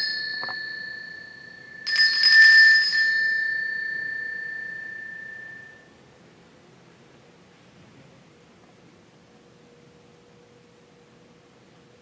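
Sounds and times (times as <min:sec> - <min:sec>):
altar bells jingling: 0:00.0 - 0:05.8.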